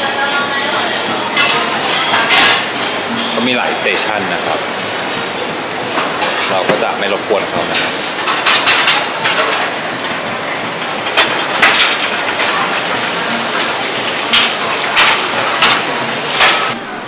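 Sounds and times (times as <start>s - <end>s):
pans and utensils clanking: 1.2s - 16.8s.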